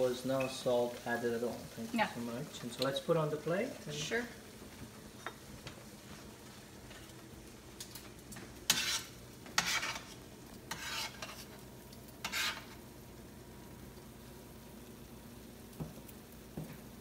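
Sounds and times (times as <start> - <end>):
utensils scraping a metal pan: 8.6 - 11.6, 12.2 - 12.8.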